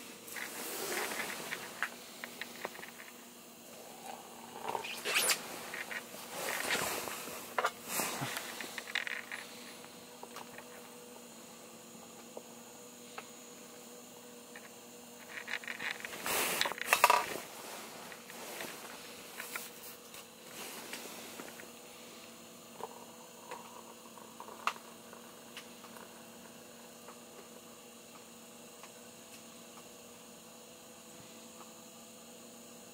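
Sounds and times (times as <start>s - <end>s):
rustling and scraping: 0.0s - 3.2s, 3.8s - 10.9s, 14.6s - 21.7s
faint steady hum: 0.0s - 32.9s.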